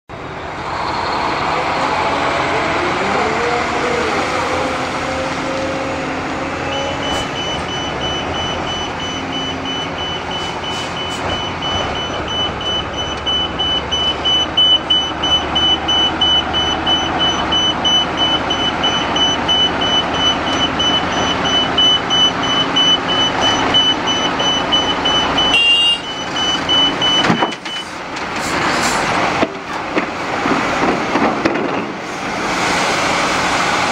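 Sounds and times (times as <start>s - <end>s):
excavator diesel engine under load: 0.1s - 33.9s
reversing alarm beeping: 6.6s - 28.0s.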